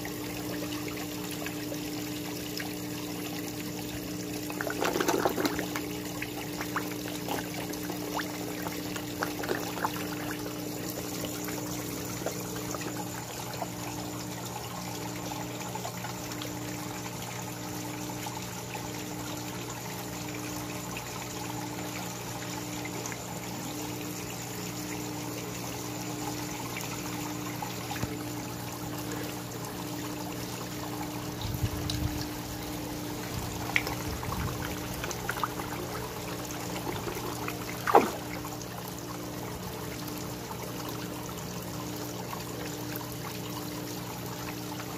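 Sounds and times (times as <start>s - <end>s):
waterfall pouring into pond: 0.0s - 16.6s, 29.0s - 44.9s
fish splashing: 4.5s - 10.8s, 33.4s - 38.6s.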